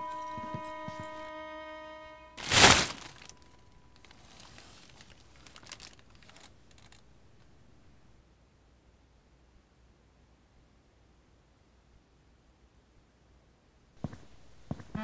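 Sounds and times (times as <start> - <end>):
held musical tone: 0.0 - 4.0
faint crinkling and rustling: 2.4 - 8.0.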